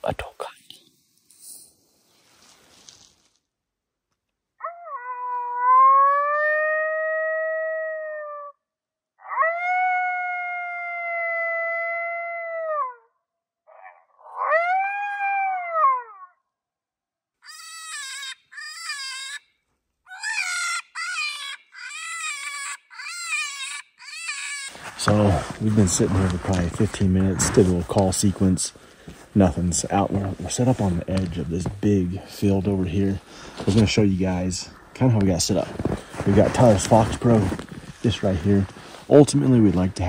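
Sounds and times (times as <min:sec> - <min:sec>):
rabbit distress call screams: 0:04.6 - 0:08.6, 0:09.2 - 0:13.0, 0:14.2 - 0:16.3, 0:17.4 - 0:19.4, 0:20.1 - 0:24.8.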